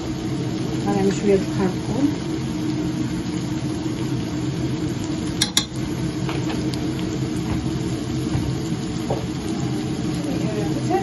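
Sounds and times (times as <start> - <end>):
low mechanical hum: 0.0 - 11.0
spoon tapping jar: 5.4 - 5.8.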